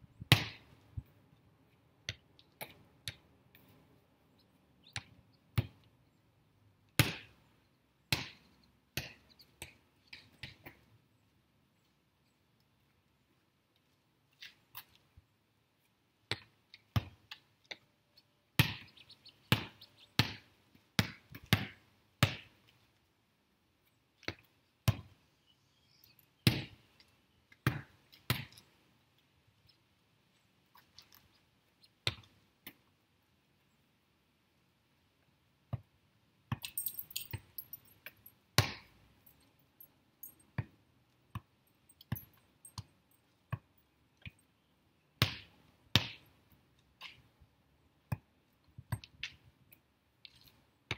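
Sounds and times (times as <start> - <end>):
volleyball slaps and bounces: 0.3 - 0.7, 6.9 - 7.4, 8.1 - 10.8, 18.6 - 18.9, 19.5 - 22.6, 26.4 - 26.8, 27.6 - 28.6, 32.0 - 32.8, 38.6 - 38.9, 45.2 - 46.3.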